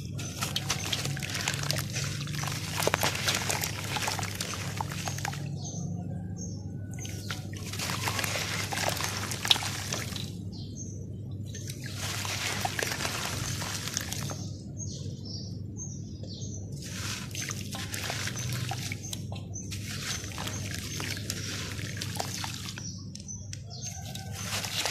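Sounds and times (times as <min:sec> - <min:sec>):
dirt fizzing into water: 0:00.1 - 0:05.6, 0:07.0 - 0:10.4, 0:11.5 - 0:14.5, 0:16.8 - 0:23.0, 0:23.8 - 0:24.9.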